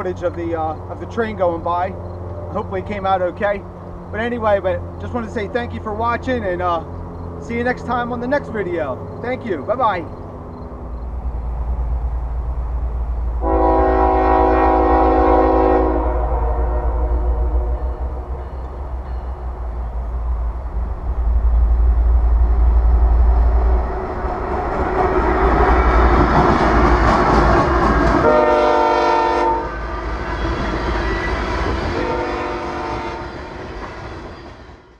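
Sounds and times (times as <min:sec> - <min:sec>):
locomotive deep rumble: 0:00.0 - 0:34.9
train wheels on rail: 0:00.0 - 0:34.9
train horn blast: 0:13.4 - 0:18.5, 0:28.2 - 0:30.1, 0:31.2 - 0:33.6.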